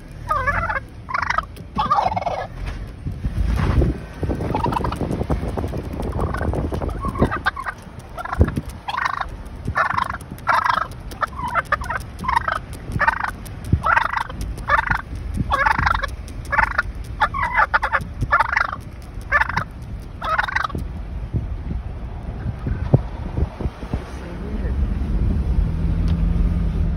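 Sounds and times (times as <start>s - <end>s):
low road rumble: 0.0s - 26.9s
turkey gobbling: 0.2s - 2.6s, 4.5s - 5.0s, 6.0s - 20.8s.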